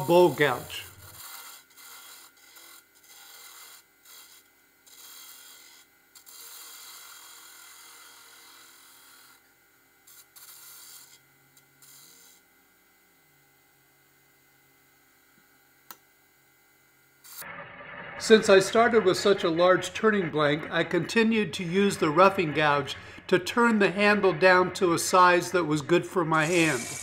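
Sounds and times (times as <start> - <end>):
bowl gouge cutting spinning wood: 0.0 - 9.5, 17.3 - 27.0.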